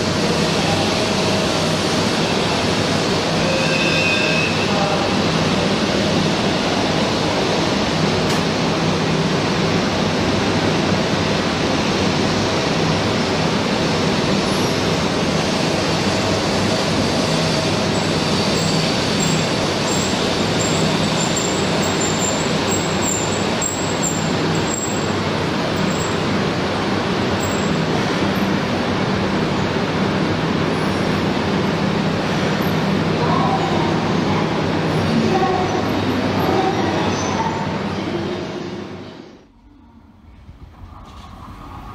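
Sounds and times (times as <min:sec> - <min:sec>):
train wheels rushing past: 0:00.0 - 0:41.9.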